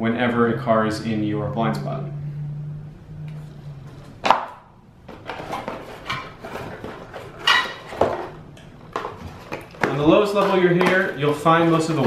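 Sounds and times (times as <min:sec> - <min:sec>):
cardboard rustling and scraping: 0:05.0 - 0:12.0.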